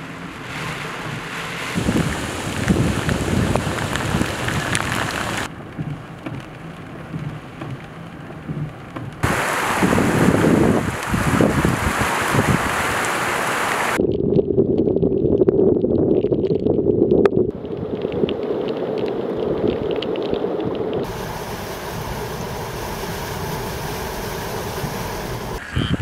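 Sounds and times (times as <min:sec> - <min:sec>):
rushing floodwater: 0:00.0 - 0:14.0, 0:21.0 - 0:25.6
vehicle driving through floodwater: 0:00.0 - 0:14.0, 0:20.5 - 0:25.6
water pouring over a curb: 0:00.4 - 0:05.5.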